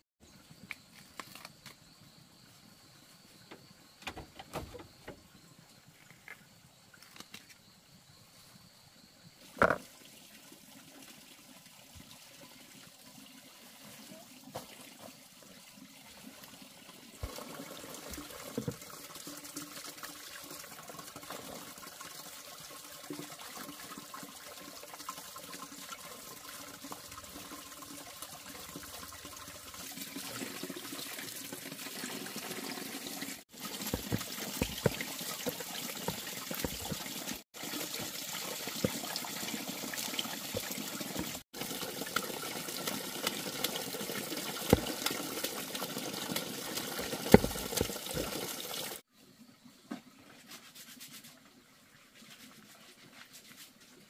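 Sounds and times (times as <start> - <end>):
water splashing from a spout: 9.8 - 49.1.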